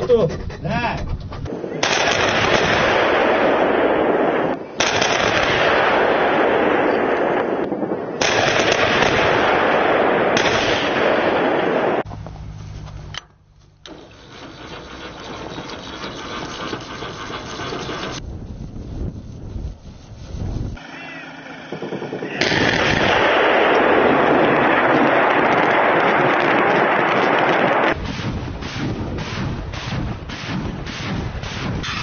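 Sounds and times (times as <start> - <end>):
artillery and rocket fire: 1.5 - 12.1, 20.8 - 32.0
low steady hum: 12.1 - 17.4.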